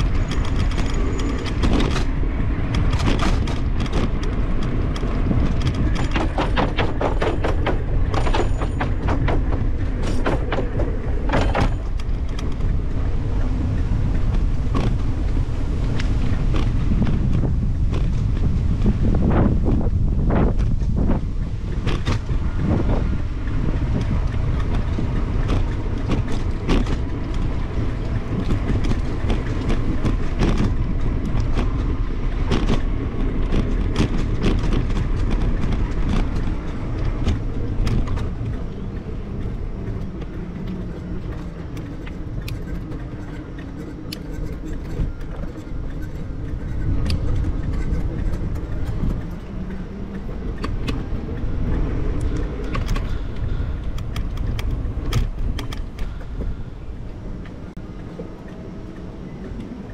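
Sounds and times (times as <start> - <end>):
bicycle clicks and rattles: 0.0 - 59.9
wind rumbling over microphone: 0.0 - 59.9.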